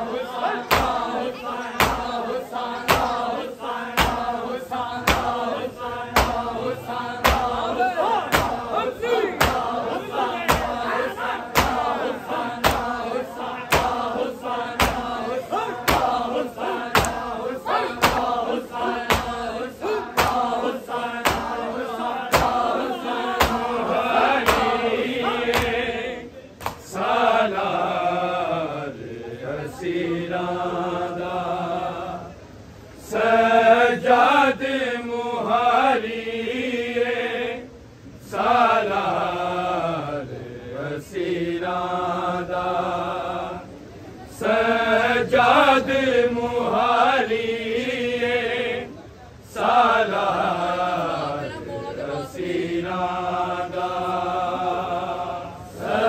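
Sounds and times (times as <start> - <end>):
rhythmic chest-beating: 0.0 - 27.4
group chanting: 0.0 - 56.0.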